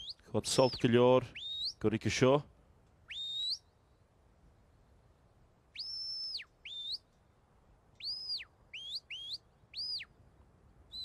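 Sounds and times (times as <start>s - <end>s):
whistle commands: 0.0s - 1.8s, 3.1s - 3.6s.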